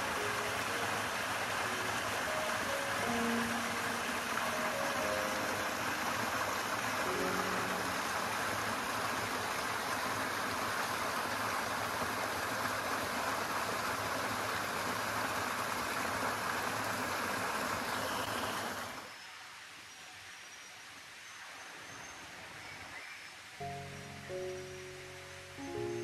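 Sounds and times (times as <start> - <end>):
stream splashing over rocks: 0.0 - 19.1.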